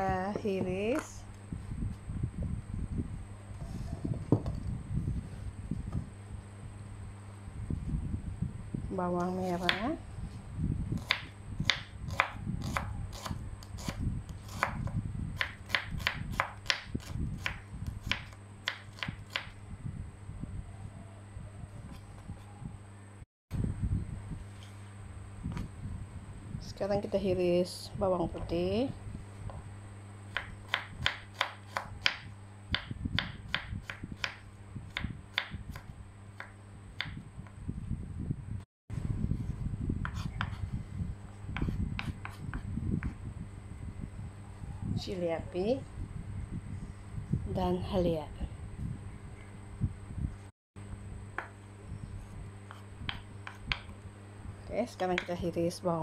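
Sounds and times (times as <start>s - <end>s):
knife chopping on wooden board: 11.0s - 19.5s.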